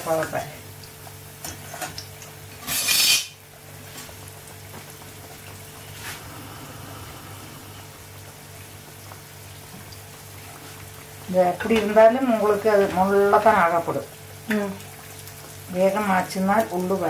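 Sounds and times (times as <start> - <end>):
dough frying in oil: 0.0 - 17.0
low steady hum: 0.0 - 17.0.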